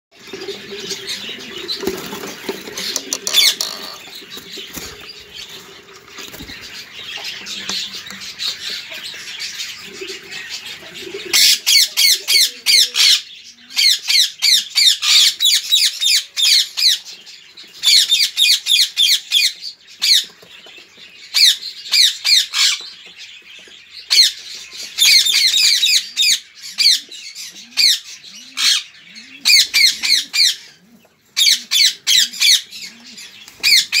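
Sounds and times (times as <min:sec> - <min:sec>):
parakeet chicks calling: 0:00.2 - 0:34.0.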